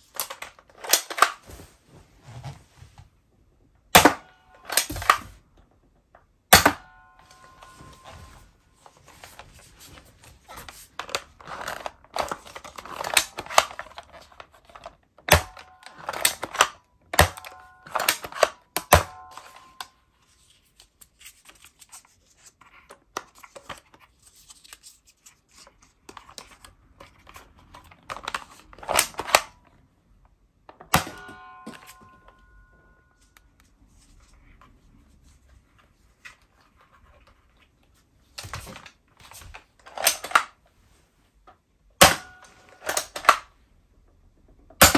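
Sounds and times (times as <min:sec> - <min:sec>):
plastic toy blaster clicks and clacks: 0:00.0 - 0:01.3, 0:11.0 - 0:19.9, 0:27.2 - 0:29.6, 0:42.0 - 0:43.5.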